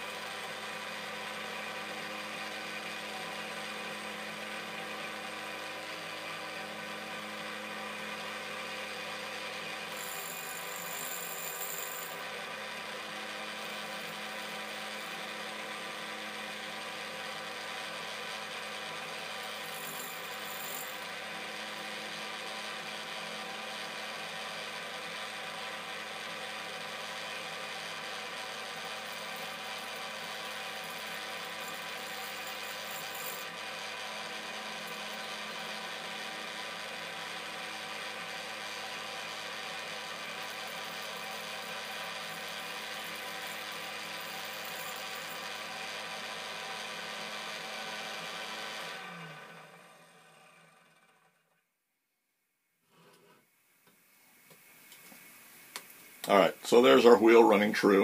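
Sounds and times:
grinder motor humming: 0.0s - 51.4s
dresser scraping grinding wheel: 19.4s - 21.4s.

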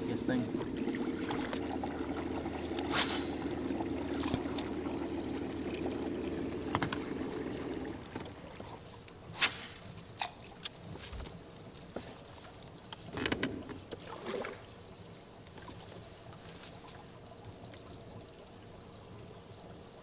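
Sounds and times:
small boat motor running: 0.0s - 8.7s.

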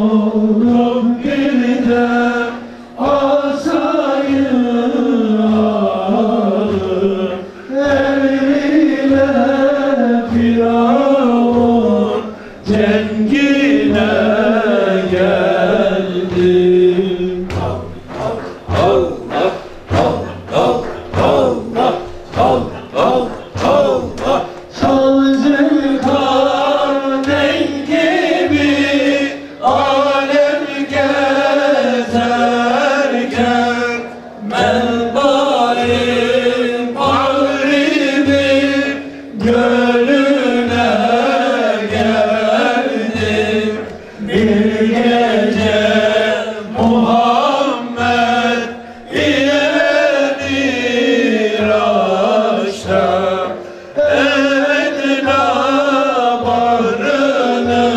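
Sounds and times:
low drum beat: 0.0s - 57.9s
man singing a hymn: 0.0s - 57.9s.

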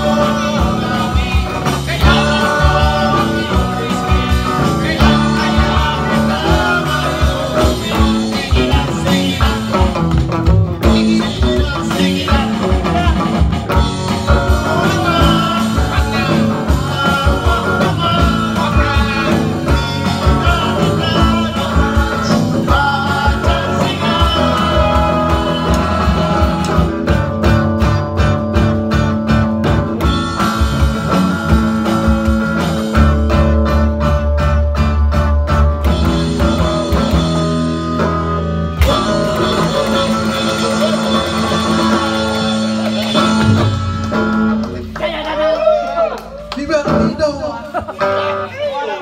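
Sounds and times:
person singing: 0.0s - 10.2s, 10.8s - 27.2s, 38.8s - 44.3s
guitars strumming rapidly: 0.0s - 45.4s
rock band playing: 0.0s - 49.0s.

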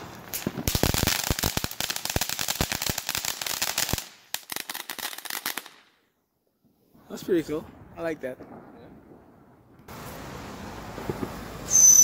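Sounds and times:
firework fountain hissing and popping: 0.0s - 6.0s, 9.8s - 12.0s.

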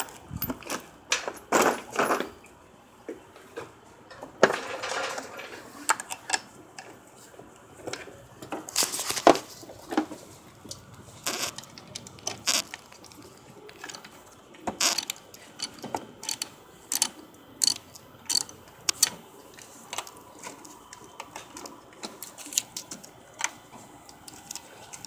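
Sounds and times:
ratchet wrench clicking: 14.8s - 19.1s.

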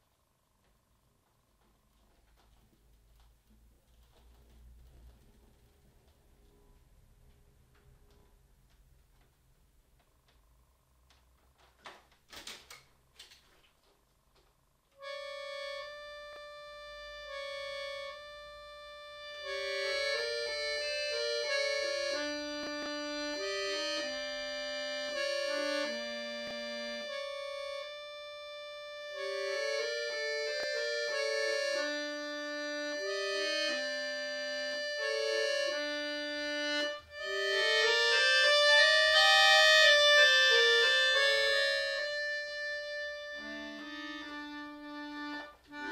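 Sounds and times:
button accordion melody: 15.0s - 45.9s.

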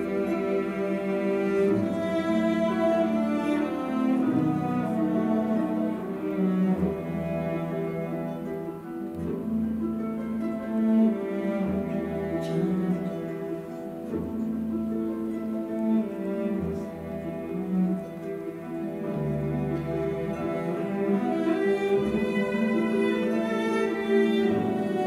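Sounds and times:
cello line: 0.0s - 25.0s
slow orchestral music: 0.0s - 25.0s.

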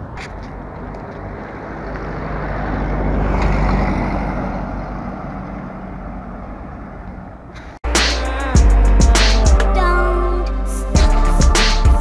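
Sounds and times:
vehicle passing on street: 0.0s - 7.9s.

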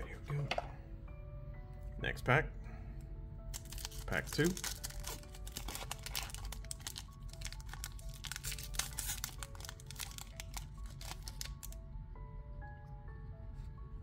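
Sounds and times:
soft background music: 0.0s - 14.0s
wrapper crinkling and tearing: 3.5s - 11.8s.

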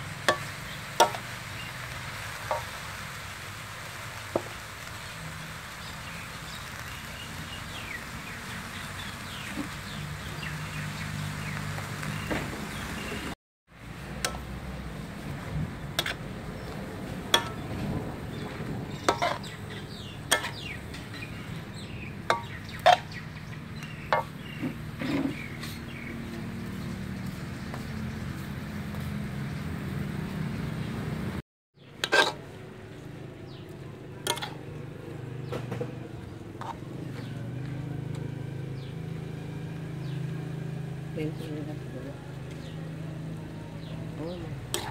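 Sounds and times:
metal spatula scraping wok: 0.1s - 3.0s, 15.2s - 25.9s, 31.9s - 33.1s, 34.2s - 34.8s, 35.4s - 37.3s, 44.5s - 44.9s.

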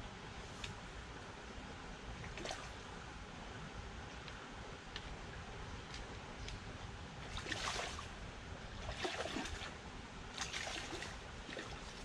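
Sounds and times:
low rush of stream: 0.0s - 12.0s
water lapping against rocks: 7.3s - 8.1s, 8.8s - 12.0s
water splashing: 7.3s - 8.2s, 8.8s - 12.0s.

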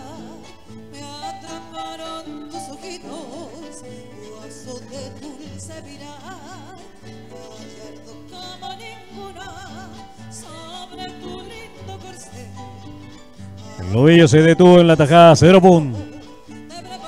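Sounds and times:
person singing with vibrato: 0.0s - 17.0s.

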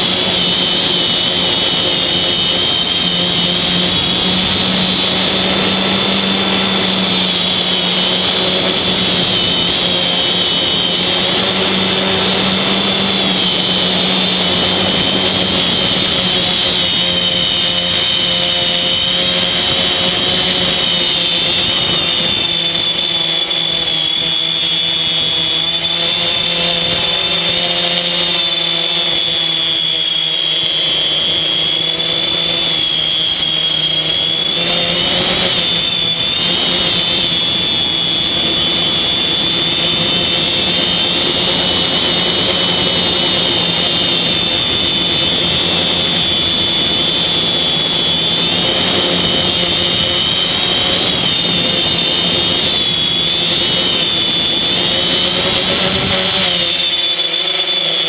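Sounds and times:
drone motors and propellers whining: 0.0s - 58.0s.

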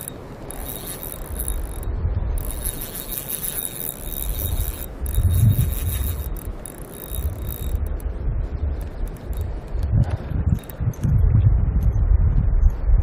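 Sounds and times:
spinning reel cranking: 0.0s - 8.0s, 8.8s - 9.8s, 10.6s - 10.8s
wind rumbling on microphone: 0.0s - 13.0s.

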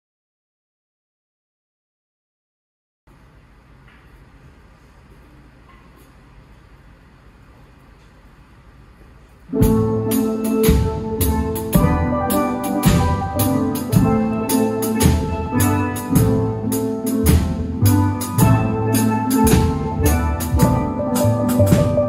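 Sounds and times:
drum kit beat: 9.5s - 22.0s
steel pans playing: 9.5s - 22.0s.

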